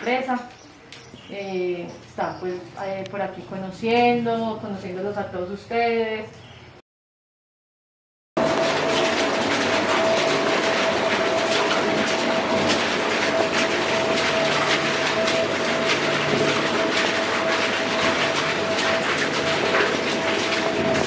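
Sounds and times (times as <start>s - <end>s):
constant mechanical whine: 8.4s - 21.0s.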